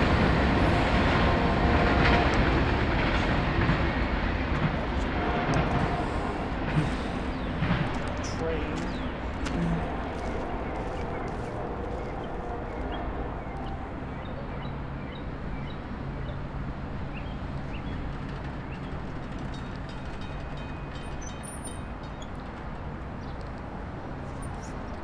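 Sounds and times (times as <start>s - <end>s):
train rumbling past: 0.0s - 25.0s.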